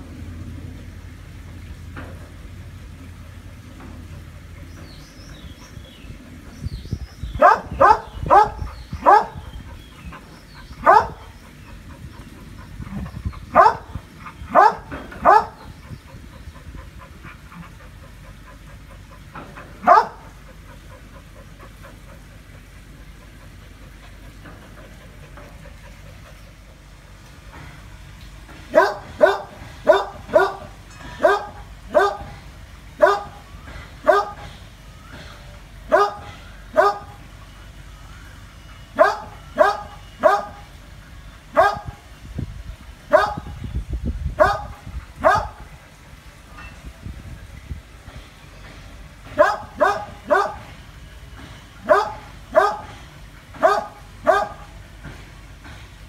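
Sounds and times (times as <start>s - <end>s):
dog barking: 7.4s - 9.4s, 10.8s - 11.2s, 13.6s - 15.6s, 19.8s - 20.2s, 28.7s - 32.3s, 33.0s - 33.4s, 34.0s - 34.4s, 35.9s - 37.2s, 39.0s - 40.6s, 41.6s - 41.9s, 43.1s - 43.5s, 44.4s - 45.6s, 49.4s - 50.7s, 51.9s - 52.9s, 53.6s - 54.6s.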